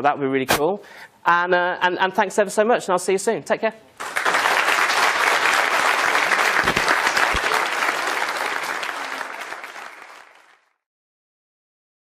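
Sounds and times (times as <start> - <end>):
audience applauding: 4.0 - 10.7.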